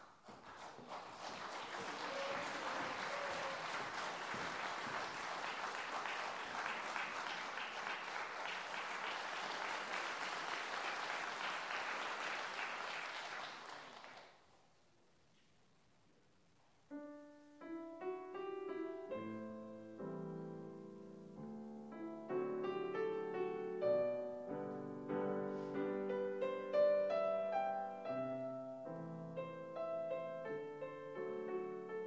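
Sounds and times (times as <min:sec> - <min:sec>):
audience applauding: 0:00.0 - 0:14.5.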